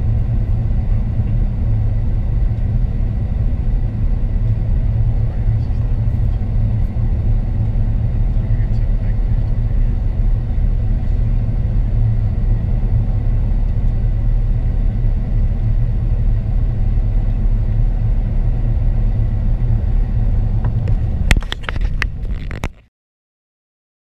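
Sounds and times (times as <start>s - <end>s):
aircraft cabin engine rumble: 0.0s - 22.8s
sharp clicks and knocks: 20.6s - 22.9s.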